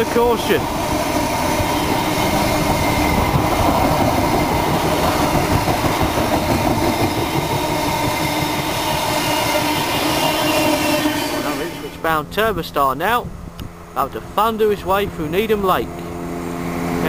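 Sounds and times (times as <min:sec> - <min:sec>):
clickety-clack of rails: 0:00.0 - 0:11.6
train wheels rumbling on rails: 0:00.0 - 0:16.2.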